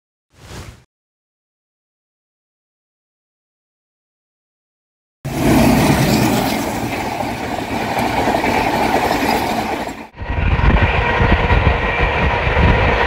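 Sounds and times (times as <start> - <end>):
train rumble and wheel clatter: 5.3 - 13.0
train rushing past: 5.3 - 13.0.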